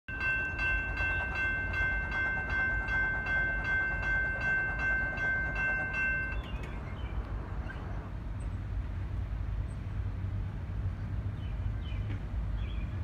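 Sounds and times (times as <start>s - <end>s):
crossing bell ringing: 0.1s - 6.7s.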